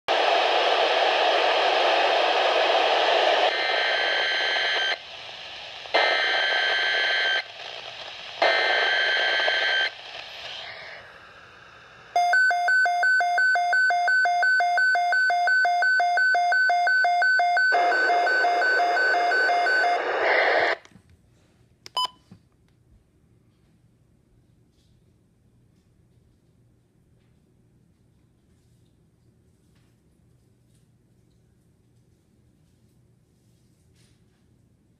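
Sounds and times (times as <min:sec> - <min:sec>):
radio click: 0:00.1 - 0:11.2
hissy radio broadcast: 0:00.1 - 0:12.2, 0:17.7 - 0:20.9.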